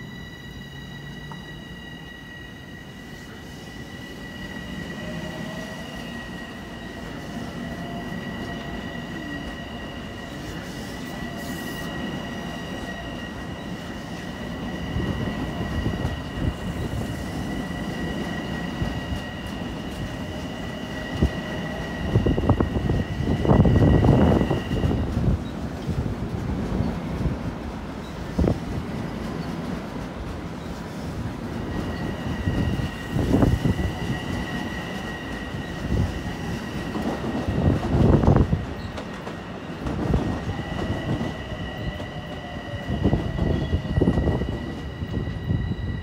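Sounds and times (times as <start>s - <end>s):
high-pitched squeal: 0.0s - 25.0s
train rail rumble: 0.0s - 46.0s.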